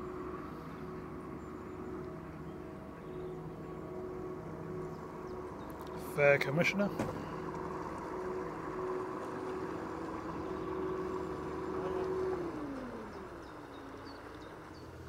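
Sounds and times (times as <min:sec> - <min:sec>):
motor boat engine passing: 0:00.0 - 0:15.0.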